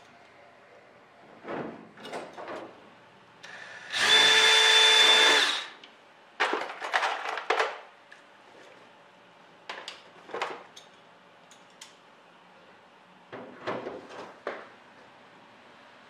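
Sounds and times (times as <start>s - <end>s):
cordless drill drilling metal: 3.5s - 5.7s.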